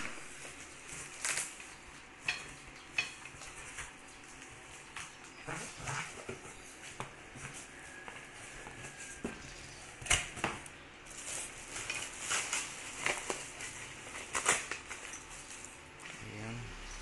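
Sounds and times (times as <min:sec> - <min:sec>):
packaging rustling: 0:00.0 - 0:01.8, 0:10.0 - 0:16.2.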